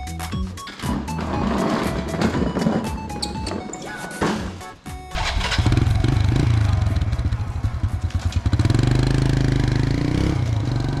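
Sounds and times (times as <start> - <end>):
motorbike engine pulling away: 5.1 - 11.0.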